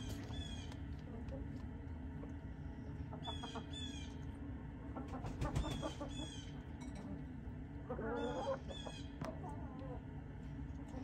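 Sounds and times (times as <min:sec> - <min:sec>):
chickens calling: 0:02.9 - 0:06.7, 0:07.7 - 0:10.1.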